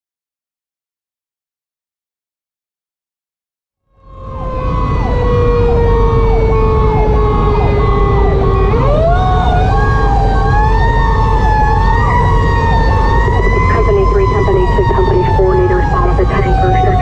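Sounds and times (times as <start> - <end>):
electronic siren sweeps: 3.9 - 17.0
mechanical siren wailing: 3.9 - 17.0
road rumble: 3.9 - 17.0
diesel engine: 4.0 - 17.0.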